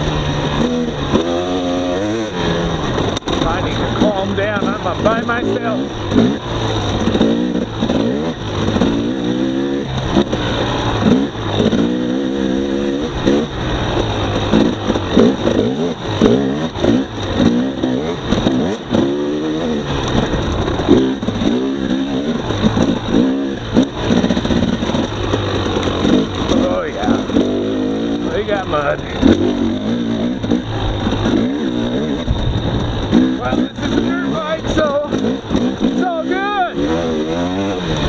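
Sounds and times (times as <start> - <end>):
dirt bike engine revving: 0.0 - 38.0.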